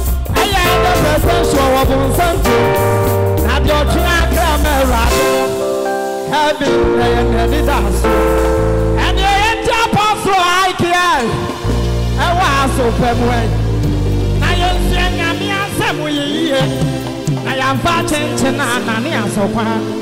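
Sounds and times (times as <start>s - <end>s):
man singing into a microphone: 0.0s - 5.6s, 6.3s - 11.6s, 12.2s - 13.6s, 14.4s - 20.0s
deep bass line: 0.0s - 10.4s, 11.1s - 19.8s
sustained chords: 0.4s - 10.4s.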